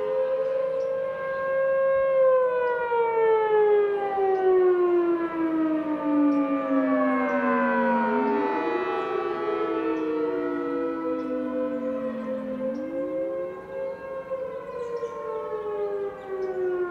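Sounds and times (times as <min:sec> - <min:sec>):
storm warning sirens: 0:00.0 - 0:16.9.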